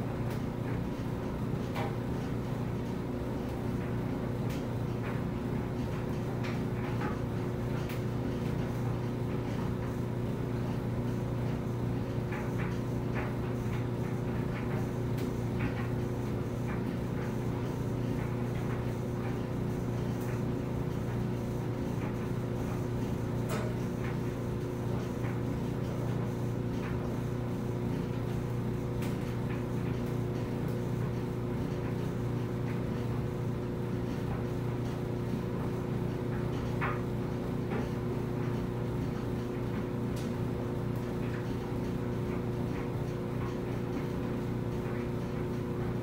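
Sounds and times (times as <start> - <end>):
clothes dryer tumbling: 0.0 - 46.0.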